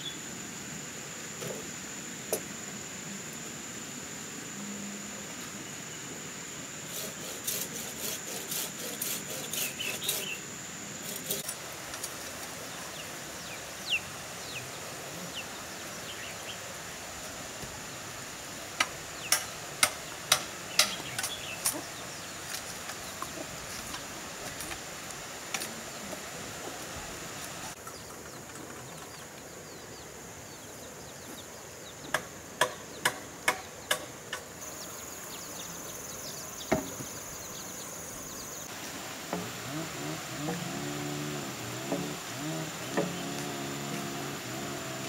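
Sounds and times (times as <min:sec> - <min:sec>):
bamboo poles knocking: 0:18.8 - 0:21.8, 0:36.7 - 0:37.0, 0:42.9 - 0:43.4.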